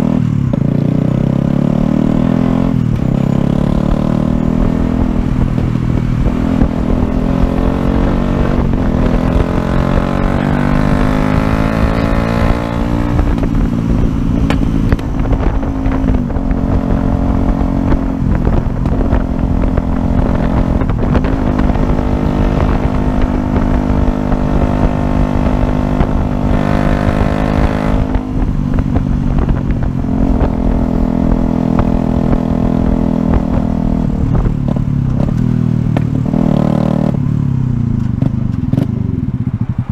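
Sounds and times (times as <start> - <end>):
motorcycle engine accelerating: 0.0 - 39.9
low rumble: 2.6 - 36.4.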